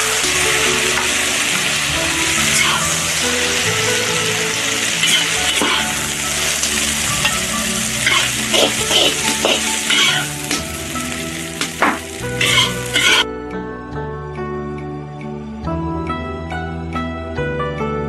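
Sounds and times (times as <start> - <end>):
metal ladle scraping: 0.0 - 13.2
vegetables sizzling in a wok: 0.0 - 13.2
background music: 0.0 - 18.0.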